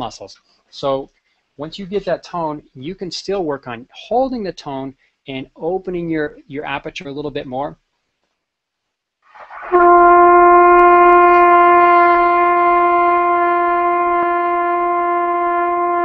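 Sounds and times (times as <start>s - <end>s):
trumpet long tone: 9.3s - 16.0s.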